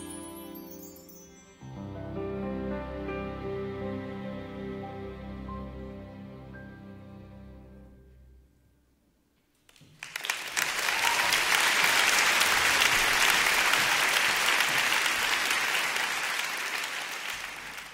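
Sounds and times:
music: 0:00.0 - 0:09.4
audience applauding: 0:09.6 - 0:17.9.

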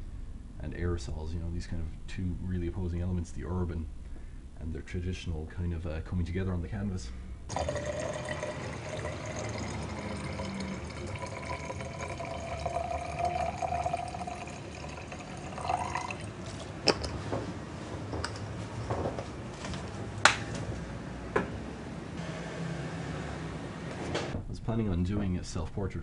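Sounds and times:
liquid pouring into glass jar: 0:07.5 - 0:16.6.

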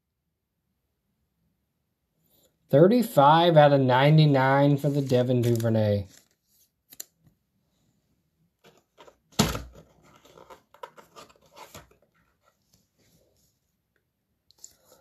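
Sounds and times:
plastic rustling and clicks: 0:08.6 - 0:12.3.

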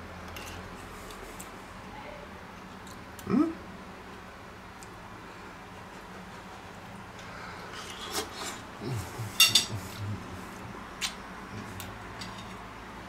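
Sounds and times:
fork clinking on ceramic plate: 0:09.4 - 0:09.7.

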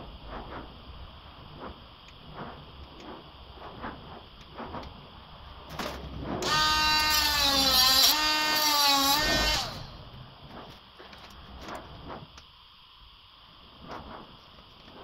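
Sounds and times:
angle grinder whining on metal mesh: 0:06.4 - 0:10.0.

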